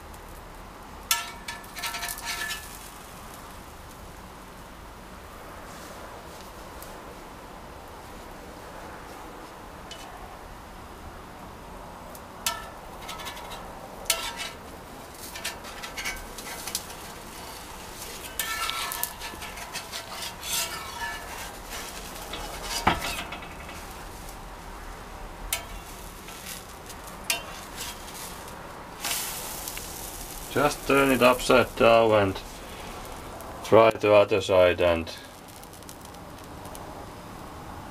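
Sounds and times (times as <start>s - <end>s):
frying sizzle: 0.0s - 4.7s, 12.5s - 33.9s, 34.9s - 37.6s
spatula scraping and tapping pan: 1.1s - 2.9s, 9.9s - 10.1s, 12.5s - 24.4s, 25.5s - 31.8s.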